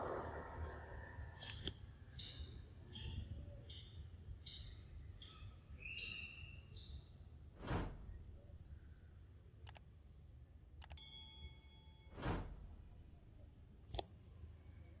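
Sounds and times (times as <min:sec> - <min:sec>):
faint low outdoor rumble: 0:00.0 - 0:05.3, 0:11.7 - 0:15.0
sharp clicks: 0:09.6 - 0:09.9.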